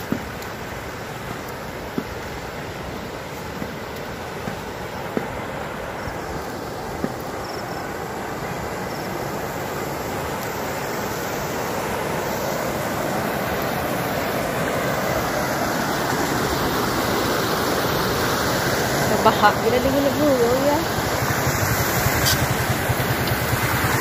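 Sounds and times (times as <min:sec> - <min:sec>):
outdoor rushing noise: 0:11.0 - 0:24.0.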